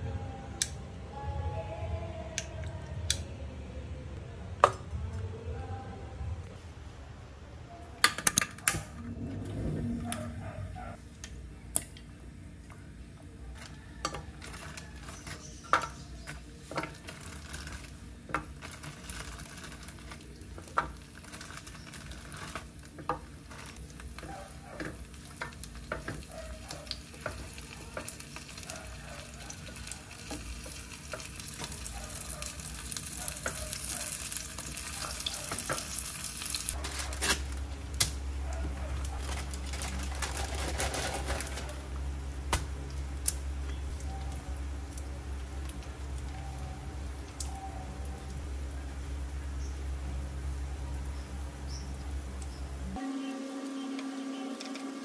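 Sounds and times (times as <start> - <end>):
food sizzling in oil: 14.1 - 38.3.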